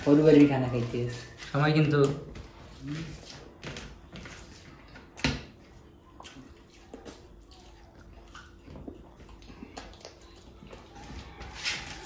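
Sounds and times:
wet squishing of rice: 0:00.0 - 0:12.0
chewing: 0:02.4 - 0:12.0.

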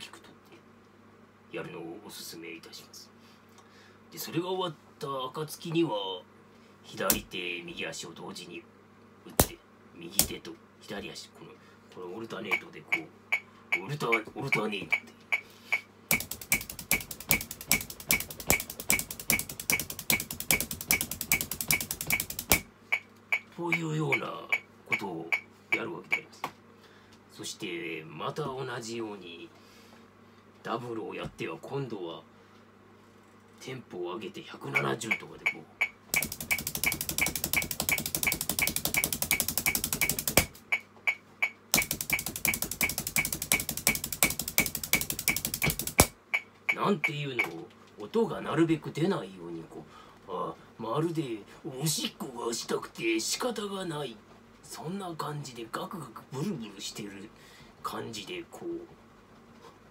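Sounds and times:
sticks striking practice pad: 0:09.4 - 0:09.6, 0:16.1 - 0:22.7, 0:36.1 - 0:40.6, 0:41.4 - 0:46.8
metronome clicking: 0:12.5 - 0:26.2, 0:34.8 - 0:47.6
foot taps on floor: 0:16.1 - 0:22.7, 0:36.1 - 0:40.6, 0:41.8 - 0:46.1.

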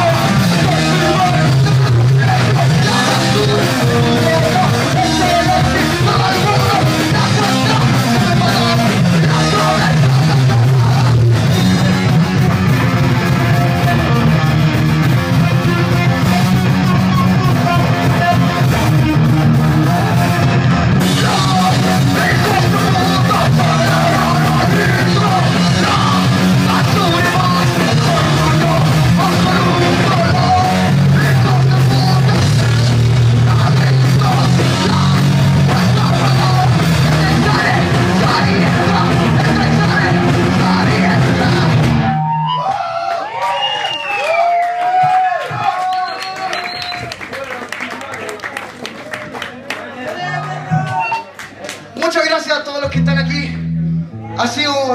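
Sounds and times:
singer yelling into microphone: 0:00.0 - 0:12.1, 0:21.0 - 0:42.3
drum kit: 0:00.0 - 0:42.5
electric guitars: 0:00.0 - 0:42.6.

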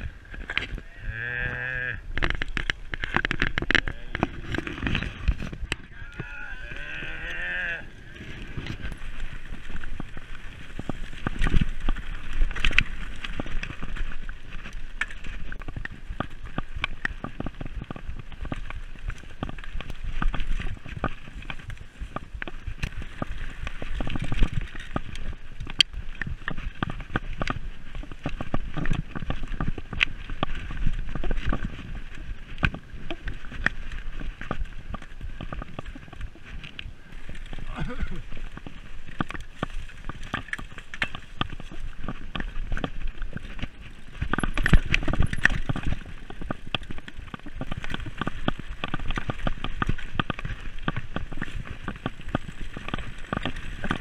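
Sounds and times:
tyres crunching over trail: 0:00.0 - 0:54.0
low rumble: 0:03.7 - 0:10.9
bike knocks and rattles: 0:08.4 - 0:54.0.

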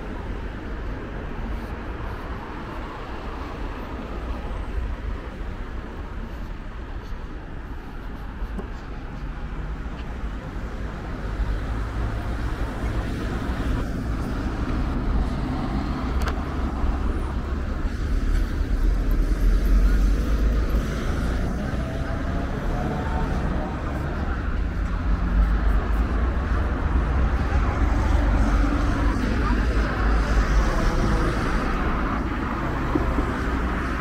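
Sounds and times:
cars and vans driving past: 0:00.0 - 0:34.0.

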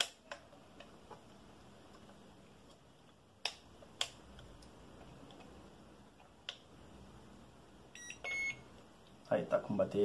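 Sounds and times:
electronic beeps: 0:08.0 - 0:08.6.

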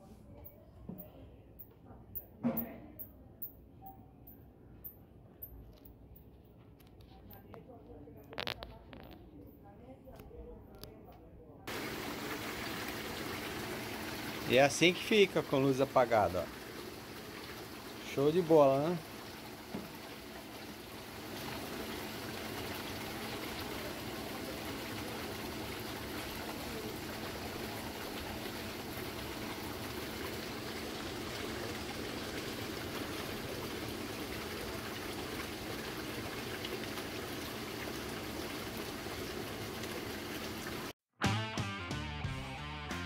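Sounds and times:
hot tub jets bubbling water: 0:11.7 - 0:41.0
music: 0:41.2 - 0:43.0.

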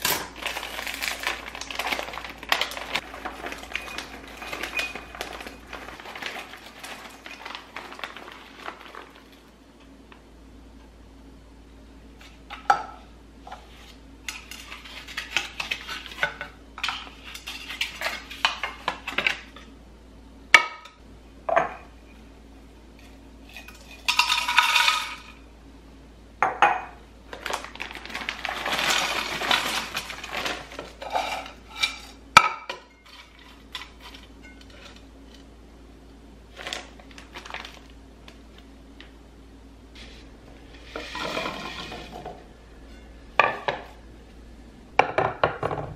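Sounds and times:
dry potpourri rattling and rustling: 0:00.2 - 0:09.6, 0:27.3 - 0:32.2, 0:36.5 - 0:38.6.

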